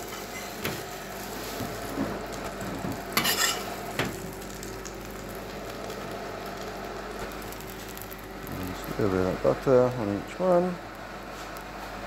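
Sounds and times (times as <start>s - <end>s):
butter sizzling in a frying pan: 0.0s - 10.2s
metal spoon scraping a pan: 3.2s - 3.7s.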